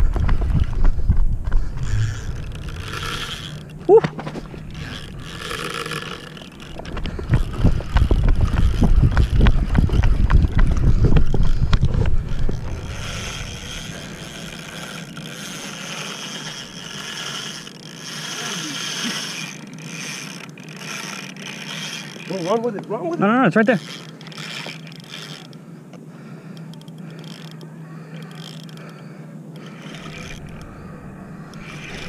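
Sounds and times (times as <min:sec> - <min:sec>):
handling rumble and knocking: 0:00.0 - 0:15.2
fishing reel clicking and ratcheting: 0:00.1 - 0:25.6, 0:26.4 - 0:32.0.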